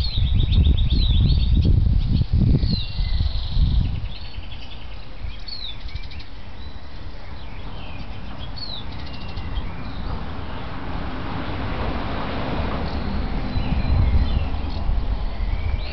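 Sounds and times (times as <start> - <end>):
small birds chirping: 0.0 - 10.9, 12.8 - 15.9
low rumble: 7.2 - 15.9.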